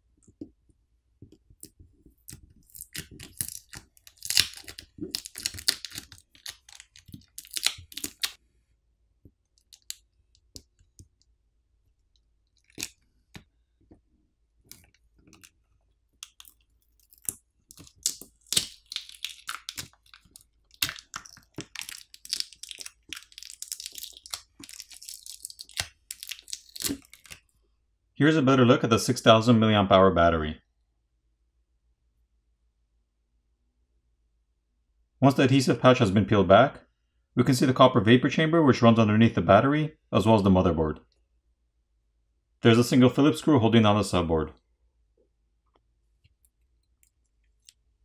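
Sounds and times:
adhesive crackling and tearing: 2.2s - 8.4s, 12.5s - 13.4s, 14.6s - 27.5s.

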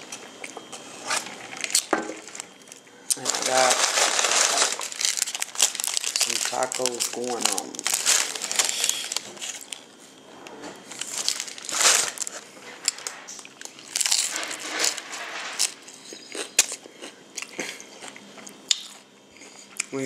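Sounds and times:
paper wrapper crinkling: 1.1s - 10.0s, 10.9s - 15.9s
taco shell crunching: 1.2s - 10.0s, 10.9s - 19.0s.

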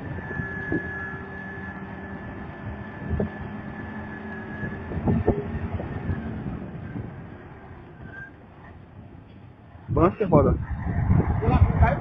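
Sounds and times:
diesel engine with high whine: 0.0s - 12.0s.

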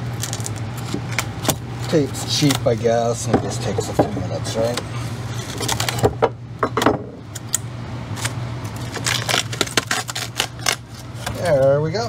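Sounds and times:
steady low hum: 0.0s - 12.0s
scraper prying fiberglass crackles: 0.1s - 2.8s, 5.4s - 6.2s, 7.3s - 11.7s.

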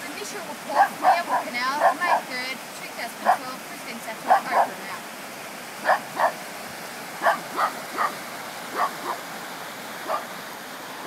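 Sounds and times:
rushing floodwater: 0.0s - 11.0s
dog barking: 0.8s - 2.3s, 3.2s - 3.5s, 4.2s - 4.8s, 5.8s - 6.4s, 7.2s - 9.2s, 10.0s - 10.3s.

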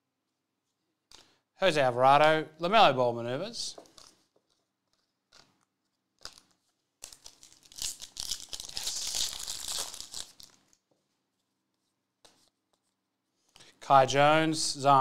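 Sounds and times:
foil wrapper tearing and crinkling: 6.2s - 10.8s.

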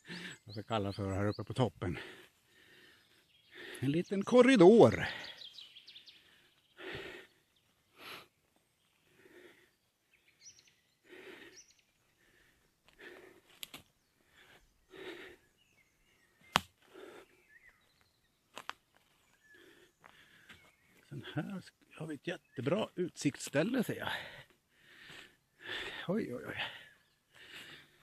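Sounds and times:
person breathing heavily: 0.0s - 0.5s, 1.9s - 3.9s, 5.0s - 17.7s, 19.1s - 20.8s, 24.0s - 28.0s.

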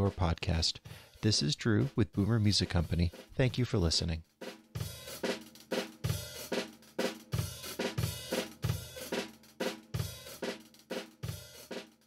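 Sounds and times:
drum kit playing groove: 0.0s - 12.0s.

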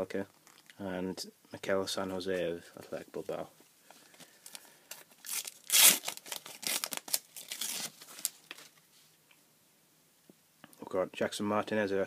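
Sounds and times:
paper wrapper tearing and crinkling: 4.5s - 8.7s.

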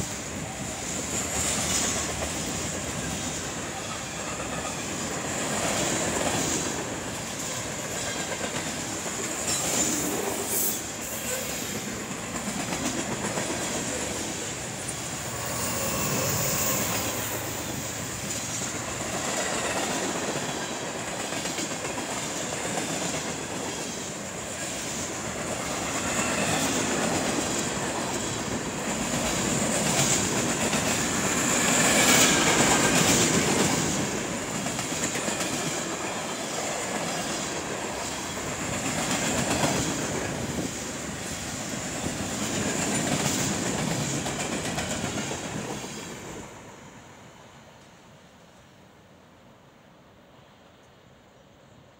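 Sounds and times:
high wheel squeal: 15.2s - 17.9s.

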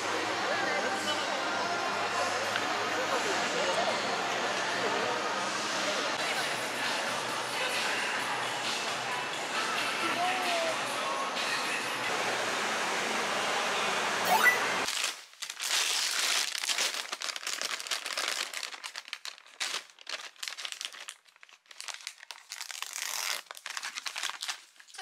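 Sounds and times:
indoor crowd hubbub: 0.0s - 14.9s
plastic packaging crinkling: 14.8s - 25.0s.

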